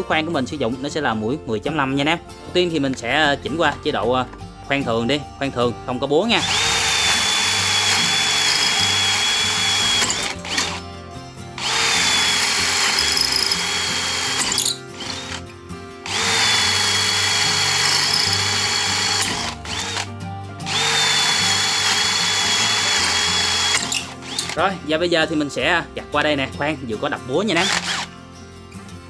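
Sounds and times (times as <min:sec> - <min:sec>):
drill boring into brick: 0:06.4 - 0:10.8, 0:11.6 - 0:15.4, 0:16.0 - 0:20.1, 0:20.7 - 0:24.6, 0:27.6 - 0:28.1.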